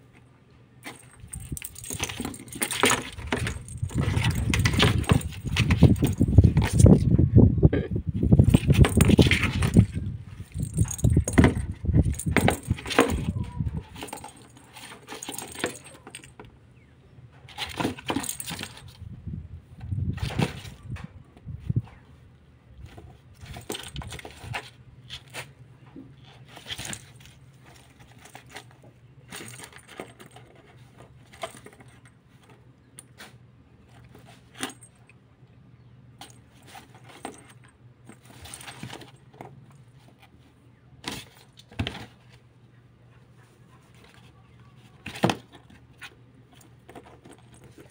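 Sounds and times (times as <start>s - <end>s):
bell ball jingling and rattling: 0.8s - 7.0s, 8.4s - 16.3s.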